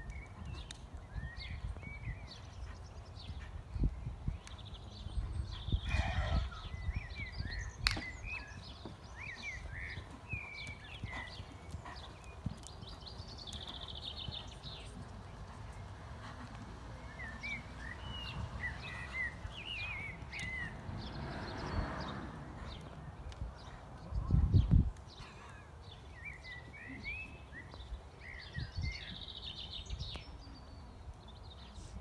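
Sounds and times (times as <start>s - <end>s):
hoofbeats on sand: 0.0s - 23.8s
small birds chirping: 0.0s - 32.0s.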